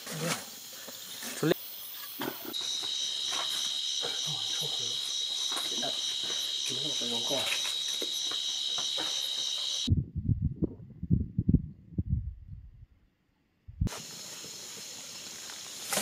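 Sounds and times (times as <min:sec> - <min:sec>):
night insects chirping: 0:00.0 - 0:09.9, 0:13.9 - 0:16.0
low thumps: 0:09.9 - 0:12.8.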